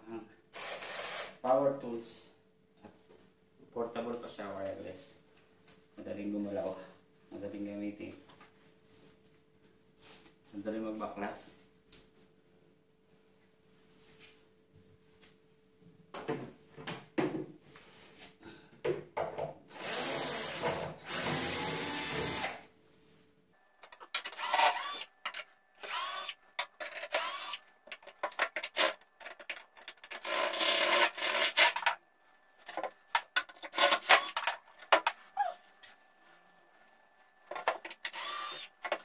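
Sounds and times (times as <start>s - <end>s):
cordless drill running: 0.6s - 1.4s, 19.7s - 22.6s, 24.2s - 25.2s, 25.8s - 26.4s, 27.0s - 27.6s, 30.2s - 31.9s, 33.7s - 34.6s, 38.0s - 39.0s.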